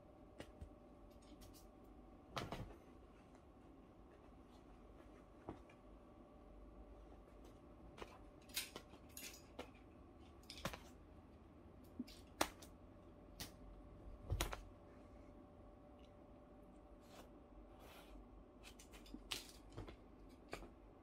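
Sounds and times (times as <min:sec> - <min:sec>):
cat pouncing on duvet: 0:02.3 - 0:03.0.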